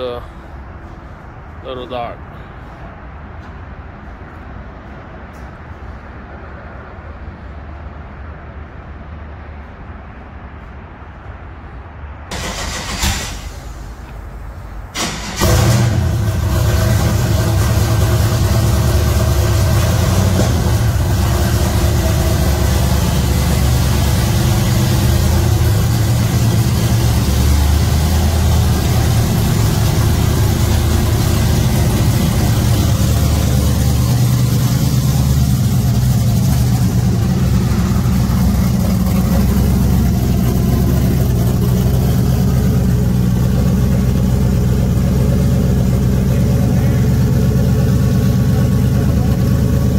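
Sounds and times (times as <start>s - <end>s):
truck engine idling: 12.3s - 49.9s.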